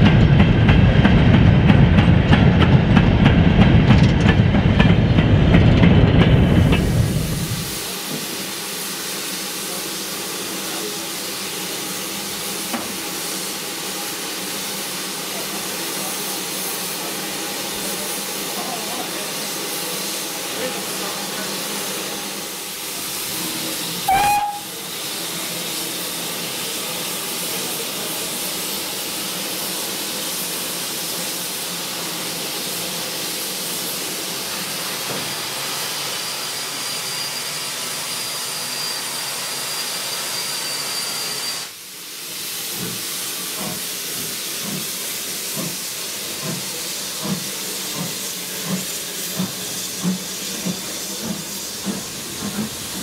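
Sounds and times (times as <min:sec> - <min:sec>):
steam locomotive chuffing: 0:00.0 - 0:53.0
steam locomotive hissing: 0:00.0 - 0:53.0
steam whistle toot: 0:24.0 - 0:24.9.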